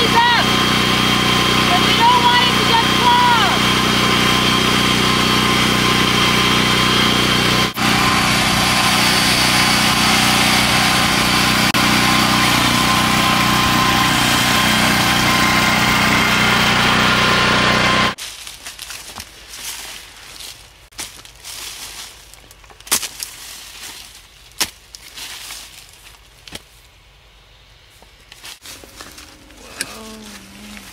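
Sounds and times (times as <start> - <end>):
small engine idling: 0.0 - 18.2, 28.6 - 30.9.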